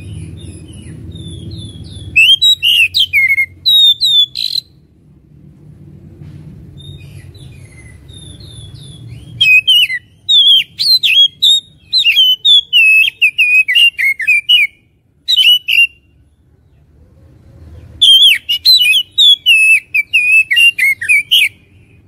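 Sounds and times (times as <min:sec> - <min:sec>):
bird singing whistled notes: 0:00.0 - 0:04.8, 0:06.8 - 0:16.2, 0:18.0 - 0:22.0
low background rumble: 0:00.0 - 0:13.3.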